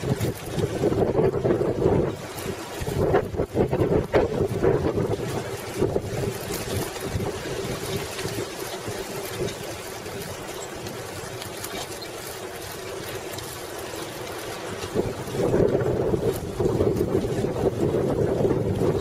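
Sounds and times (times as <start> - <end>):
bicycle tyres rolling on pavement: 0.0 - 19.0
wind rush on microphone: 0.0 - 19.0.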